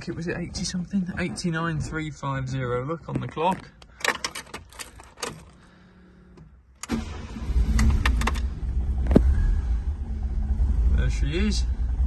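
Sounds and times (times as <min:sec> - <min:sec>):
faint ignition hum: 0:03.6 - 0:12.0
car engine starting and idling: 0:03.7 - 0:12.0
key clicking in ignition: 0:03.8 - 0:05.6, 0:06.4 - 0:08.5.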